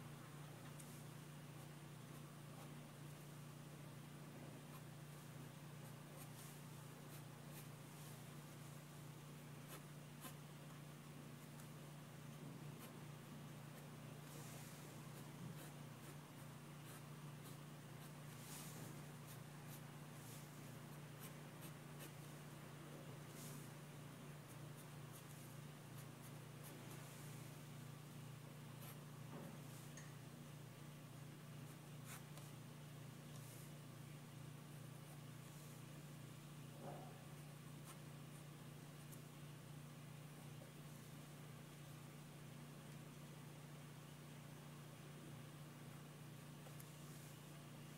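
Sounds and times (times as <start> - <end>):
low steady hum: 0.0 - 47.9
pencil scratching on paper: 4.6 - 8.2, 9.4 - 10.5, 12.8 - 13.0, 13.7 - 22.3, 24.5 - 27.3, 28.8 - 29.0, 31.6 - 32.5.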